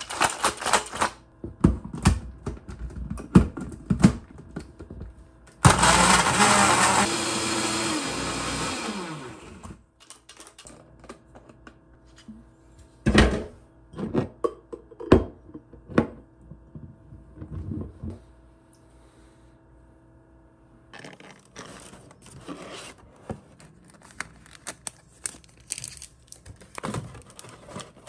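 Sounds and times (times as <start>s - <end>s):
blender running: 5.6s - 9.8s.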